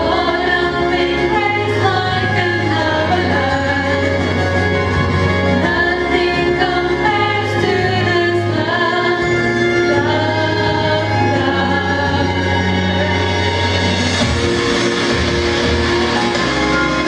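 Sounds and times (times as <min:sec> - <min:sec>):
women singing through a pa: 0:00.0 - 0:04.2, 0:05.6 - 0:09.3
instrumental backing: 0:00.0 - 0:17.0
steady bass line: 0:00.0 - 0:17.0.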